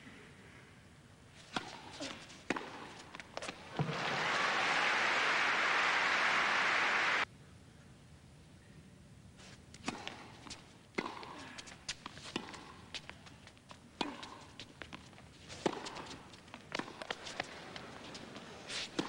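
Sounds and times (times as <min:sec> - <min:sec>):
racket striking tennis ball: 0:01.5 - 0:04.0, 0:09.8 - 0:11.4, 0:12.1 - 0:12.9, 0:15.6 - 0:17.5
tennis ball bouncing: 0:01.5 - 0:04.0, 0:09.8 - 0:11.4, 0:12.0 - 0:13.2, 0:14.0 - 0:17.8.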